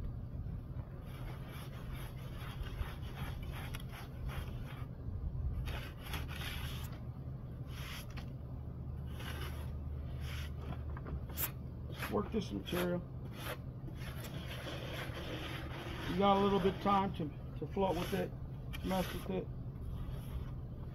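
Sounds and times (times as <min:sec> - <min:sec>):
trowel scraping wet stucco: 0:01.0 - 0:04.9, 0:05.6 - 0:06.9, 0:09.1 - 0:10.6, 0:11.3 - 0:19.4.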